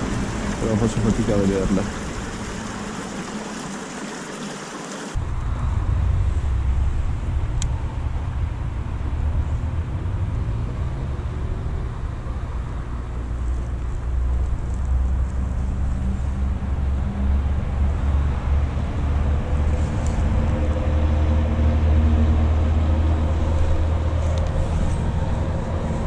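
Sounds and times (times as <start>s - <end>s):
water trickling: 0.0s - 5.2s
low rumble of background noise: 5.2s - 26.0s.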